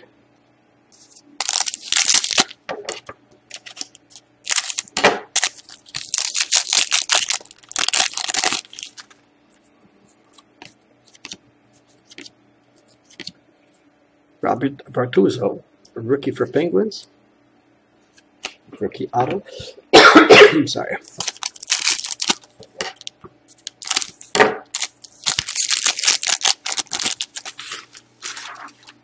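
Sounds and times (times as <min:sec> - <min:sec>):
foil wrapper tearing and crinkling: 0:01.4 - 0:02.6, 0:03.5 - 0:09.2, 0:21.1 - 0:29.0.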